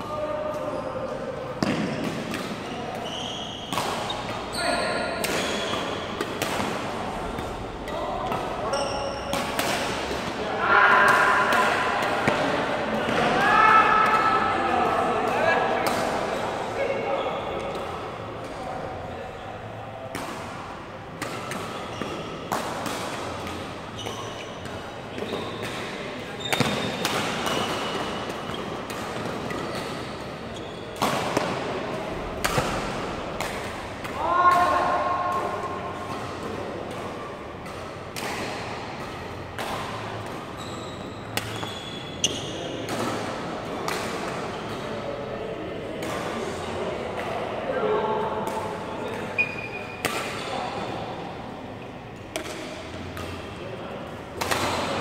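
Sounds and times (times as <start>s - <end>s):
shoes squeaking on court floor: 0.5s - 6.8s, 8.6s - 9.6s, 21.2s - 22.6s, 23.2s - 31.7s, 39.0s - 43.1s, 49.0s - 50.9s
racket hitting shuttlecock: 1.6s - 10.4s, 15.3s - 16.4s, 19.6s - 44.9s, 48.4s - 51.4s, 52.3s - 55.0s.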